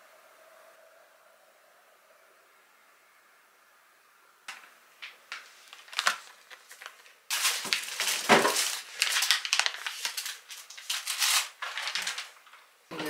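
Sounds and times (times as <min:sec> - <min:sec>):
plastic packaging crinkling: 0:04.5 - 0:13.0.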